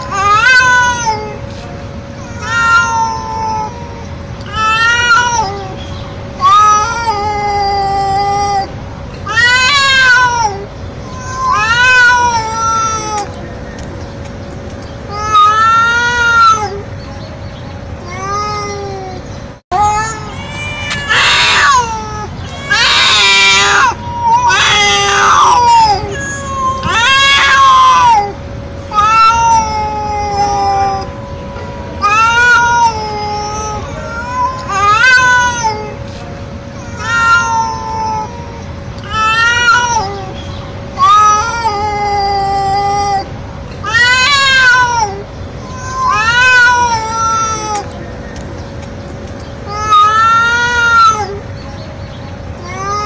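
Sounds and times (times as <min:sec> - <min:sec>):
cat meowing loudly: 0:00.0 - 0:01.4, 0:02.2 - 0:05.8, 0:06.4 - 0:08.7, 0:09.3 - 0:13.4, 0:15.1 - 0:16.8, 0:19.8 - 0:31.1, 0:32.0 - 0:36.0, 0:36.8 - 0:40.4, 0:41.0 - 0:47.9, 0:49.6 - 0:51.4, 0:52.6 - 0:53.0.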